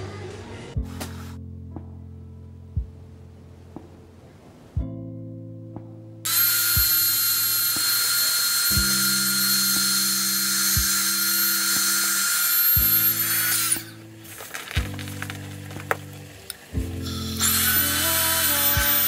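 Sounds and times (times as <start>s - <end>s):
electric air pump whining: 6.3s - 14.9s, 17.0s - 19.0s.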